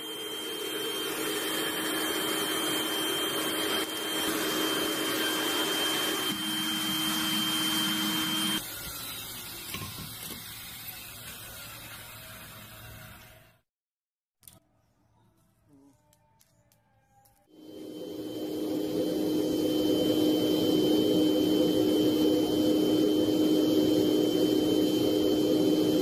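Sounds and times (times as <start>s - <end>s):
air blower whirring whine: 0.0s - 9.4s, 17.5s - 26.0s.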